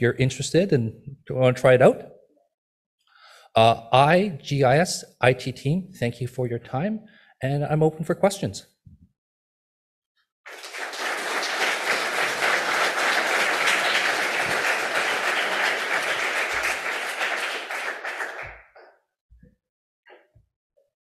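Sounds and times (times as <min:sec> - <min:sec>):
audience applauding: 0:10.5 - 0:18.9.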